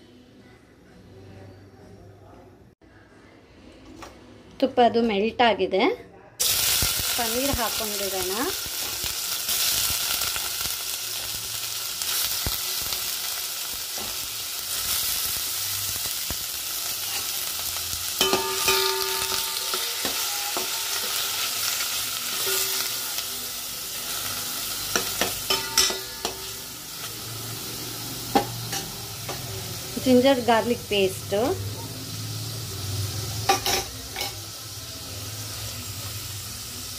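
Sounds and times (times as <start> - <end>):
cheese sizzling in a pan: 6.4 - 36.9
metal spatula scraping a pan: 18.2 - 23.0.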